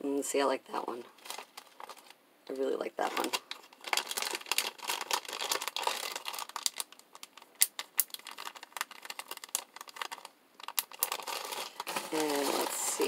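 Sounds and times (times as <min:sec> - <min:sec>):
plastic packaging crinkling: 0:01.1 - 0:02.2, 0:02.8 - 0:13.0.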